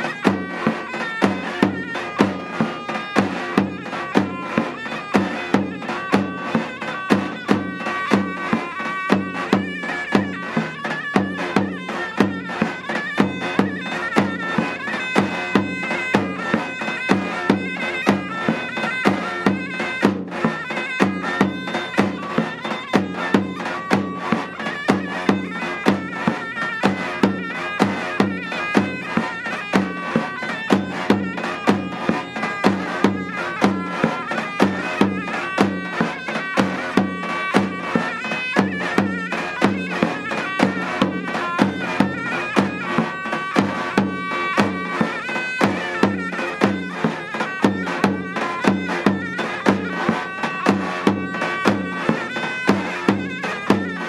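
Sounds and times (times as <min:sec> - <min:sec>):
davul drum beat: 0:00.0 - 0:54.0
reedy zurna melody: 0:00.0 - 0:54.0.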